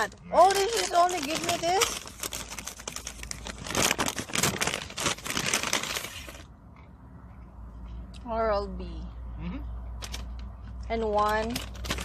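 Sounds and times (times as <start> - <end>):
paper bag crinkling: 0.0 - 6.5, 11.4 - 12.0.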